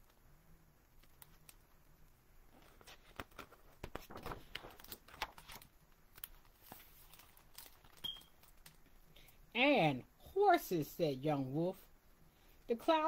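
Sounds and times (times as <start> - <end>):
paper page rustling: 2.5 - 8.8.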